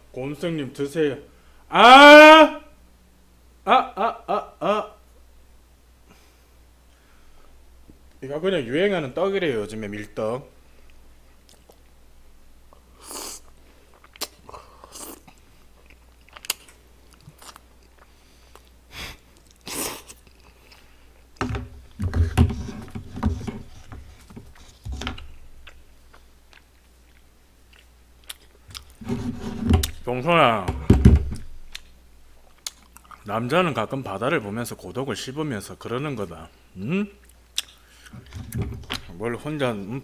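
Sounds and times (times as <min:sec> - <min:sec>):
person chewing: 0:10.9 - 0:11.9, 0:12.7 - 0:21.4, 0:24.5 - 0:29.0, 0:31.7 - 0:33.3, 0:37.2 - 0:38.3
person slurping and smacking: 0:13.0 - 0:20.9, 0:25.6 - 0:30.0, 0:37.2 - 0:38.5.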